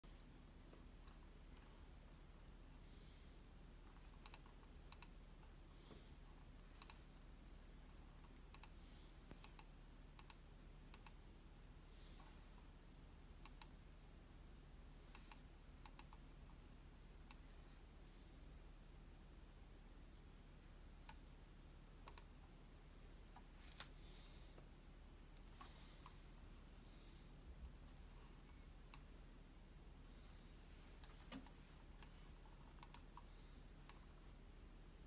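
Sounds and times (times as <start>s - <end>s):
faint sharp clicks: 8.2s - 12.3s, 13.4s - 13.8s, 15.1s - 16.3s, 22.0s - 22.3s, 31.0s - 34.2s.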